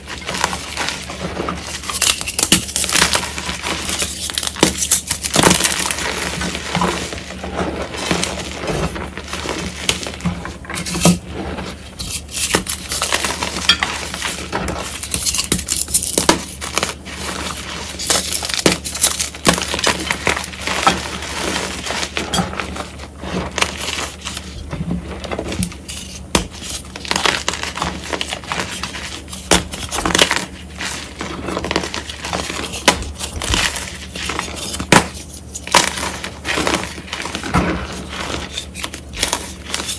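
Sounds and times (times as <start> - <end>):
chalk powder crumbling: 0.0 - 10.2, 10.8 - 24.5, 25.4 - 39.9
chalk crunching and cracking: 0.0 - 39.9.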